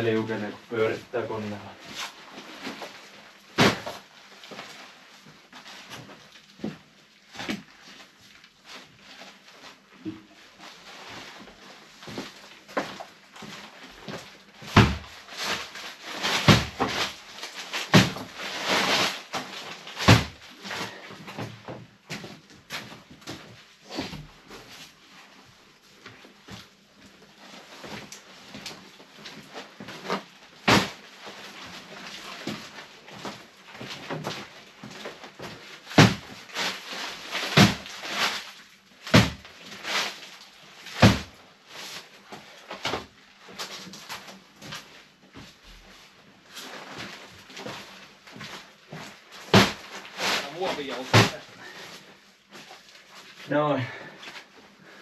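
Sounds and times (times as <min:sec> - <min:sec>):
sacks thumping onto stack: 0:03.5 - 0:04.7, 0:12.1 - 0:24.7, 0:27.8 - 0:43.9, 0:46.9 - 0:52.0.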